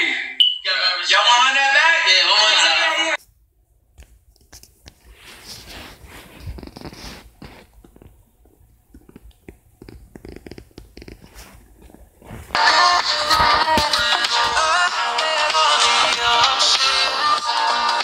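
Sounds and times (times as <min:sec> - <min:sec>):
loud music: 0:12.6 - 0:18.0.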